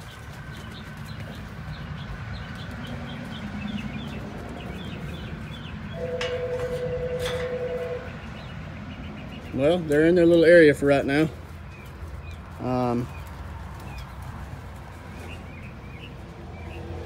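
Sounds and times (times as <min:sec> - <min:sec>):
low outdoor rumble: 0:00.0 - 0:17.0
small birds chirping: 0:00.0 - 0:17.0
two-note horn: 0:06.0 - 0:08.2.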